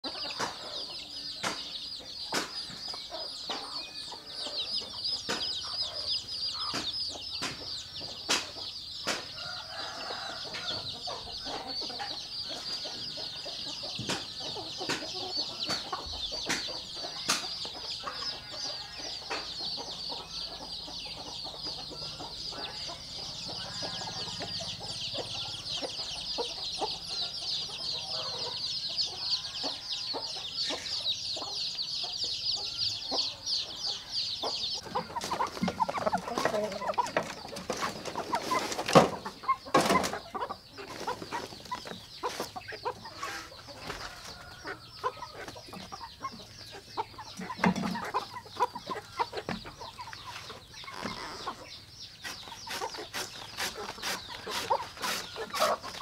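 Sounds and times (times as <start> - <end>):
chicks peeping: 0.0 - 56.0
hens clucking: 0.0 - 56.0
beaks pecking feed: 34.0 - 56.0.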